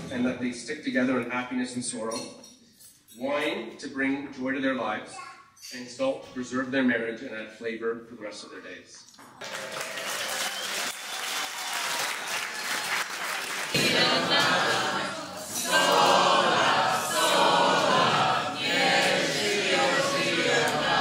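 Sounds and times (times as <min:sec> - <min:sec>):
crowd clapping and cheering: 0:09.3 - 0:21.0
group singing: 0:13.7 - 0:21.0.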